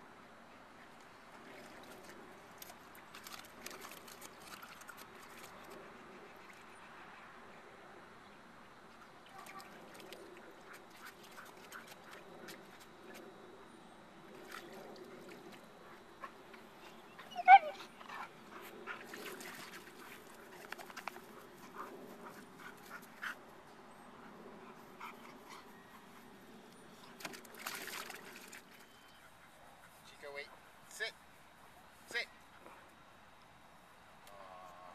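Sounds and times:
dog crying: 17.2s - 17.9s
dog splashing in water: 19.0s - 21.1s, 27.2s - 28.8s.

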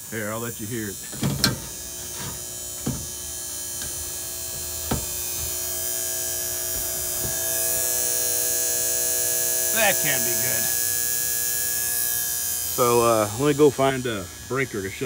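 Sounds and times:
loud electrical buzz: 0.0s - 15.0s
sharp knocks: 1.1s - 3.2s, 3.8s - 5.6s.

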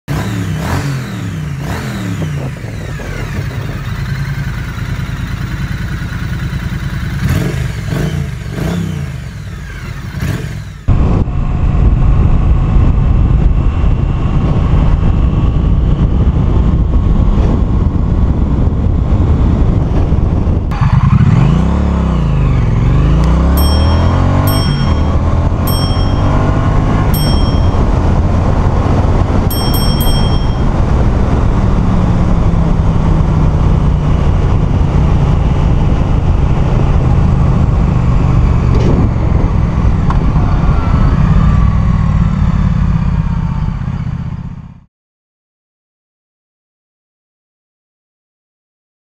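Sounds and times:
motorcycle engine revving: 0.0s - 44.8s
wind rumble on microphone: 1.5s - 4.4s, 10.9s - 44.8s.

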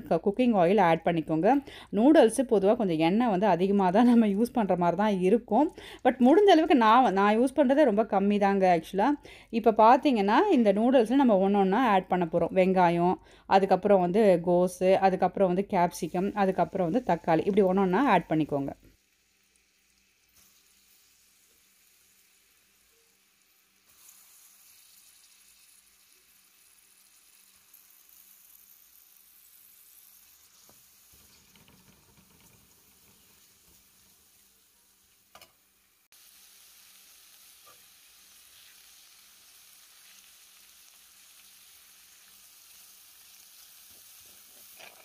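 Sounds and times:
vegetables sizzling in oil: 14.9s - 45.0s.

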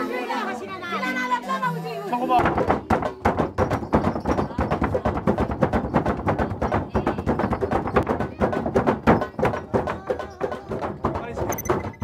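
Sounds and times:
foot stamping on wooden floor: 2.4s - 12.0s
hand drums beaten fast: 2.4s - 12.0s.

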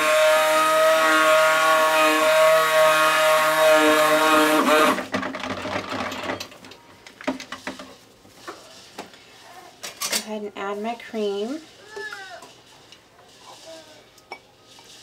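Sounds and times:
stick blender whining: 0.0s - 6.4s.

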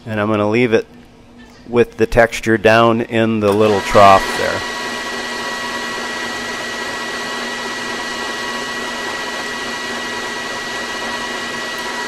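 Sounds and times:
lathe hum: 3.5s - 12.0s.

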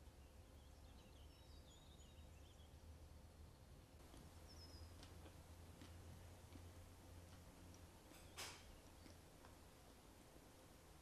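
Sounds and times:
faint high chirps: 0.1s - 2.8s, 4.4s - 5.0s
faint clicks: 4.9s - 9.6s.

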